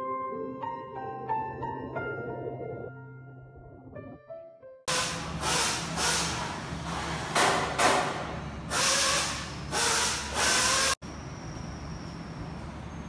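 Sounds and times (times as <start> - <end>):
compressed air hissing bursts: 4.9 - 7.3, 8.7 - 11.0.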